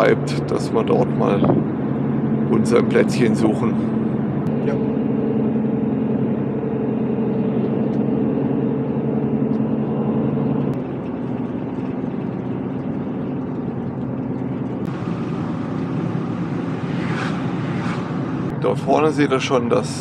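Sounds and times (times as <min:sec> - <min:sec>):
vehicle engine hum: 0:00.0 - 0:20.0
tyre and road noise: 0:03.8 - 0:18.6.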